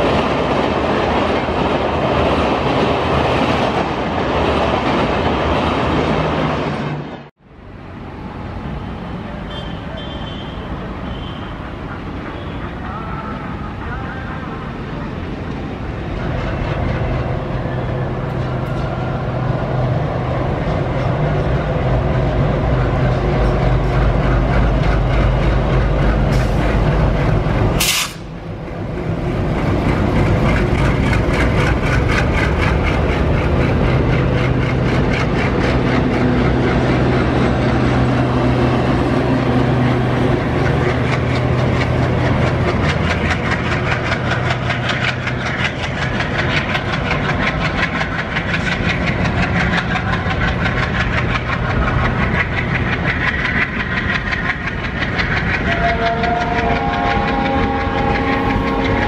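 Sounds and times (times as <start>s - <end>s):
locomotive engine rumble: 8.7s - 59.0s
train wheels clattering over rail joints: 15.4s - 59.0s.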